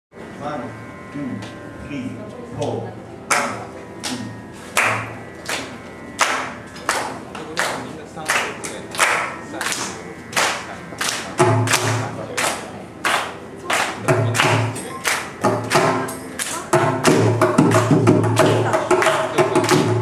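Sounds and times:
ringing hand drum strokes: 10.3s - 12.4s, 14.0s - 20.0s.

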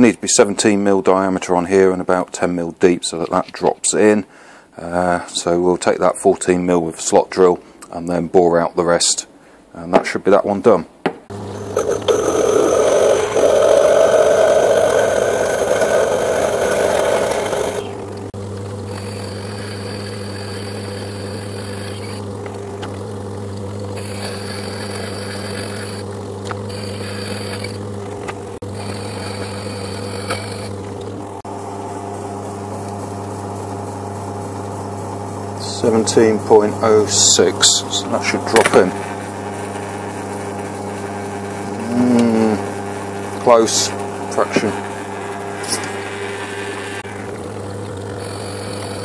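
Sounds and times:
light boring cuts: 11.3s - 28.0s, 28.6s - 30.8s, 35.6s - 49.0s
lathe grinding cut: 11.3s - 31.4s, 42.6s - 49.0s
lathe humming: 11.3s - 49.0s.

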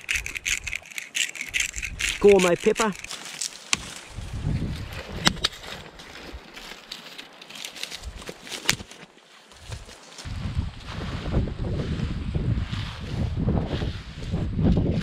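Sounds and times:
dry stalks rustling and crackling: 0.0s - 10.3s
wind buffeting microphone: 4.1s - 5.7s, 10.2s - 15.0s.

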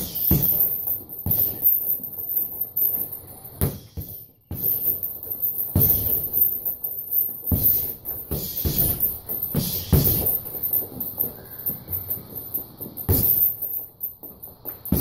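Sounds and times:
boxing gloves hitting punching bag: 0.0s - 2.0s, 3.4s - 15.0s.

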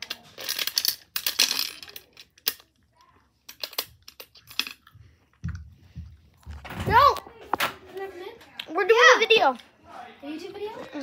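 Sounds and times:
coins and plastic parts clinking: 0.0s - 2.8s, 3.4s - 4.9s.

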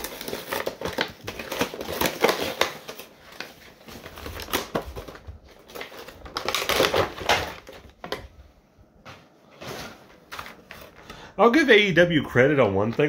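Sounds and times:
packaging clicks and scrapes: 0.0s - 8.2s.

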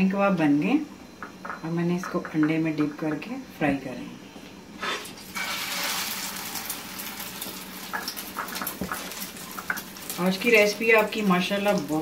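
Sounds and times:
oil sizzling in a frying pan: 4.8s - 12.0s
oil pops and crackles: 5.7s - 12.0s.

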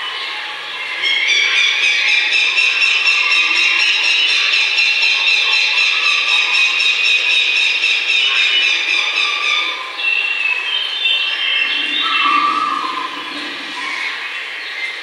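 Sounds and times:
birdsong with high trills: 0.1s - 15.0s
lower bird calls: 11.5s - 14.3s.

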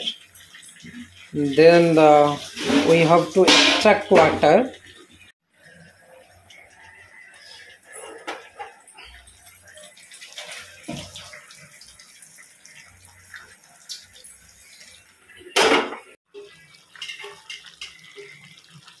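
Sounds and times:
water pouring into colander: 8.9s - 15.4s.

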